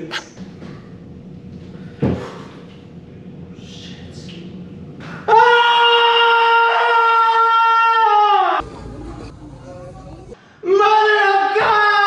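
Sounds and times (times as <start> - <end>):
man screaming: 5.3 - 8.6, 10.6 - 12.0.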